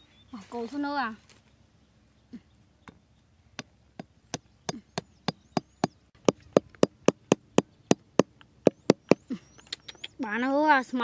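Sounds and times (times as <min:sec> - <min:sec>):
hammer knocking wooden stakes: 0:03.6 - 0:09.2.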